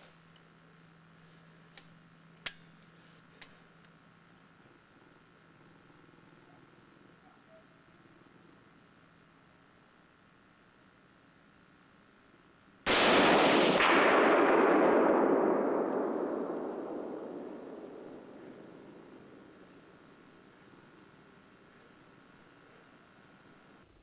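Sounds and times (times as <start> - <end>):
rifle shot with rolling echo: 12.9 - 21.4.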